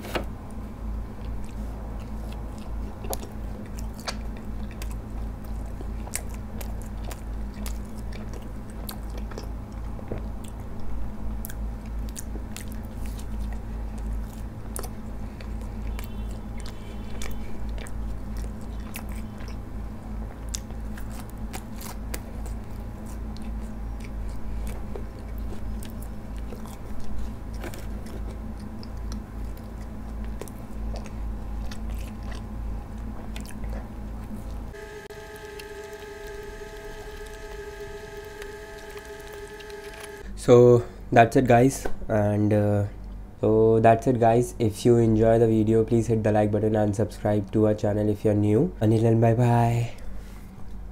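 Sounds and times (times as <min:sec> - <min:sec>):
biting and chewing bread: 0:00.0 - 0:40.3
steady low hum: 0:00.0 - 0:50.9
crust crunching: 0:01.2 - 0:40.2.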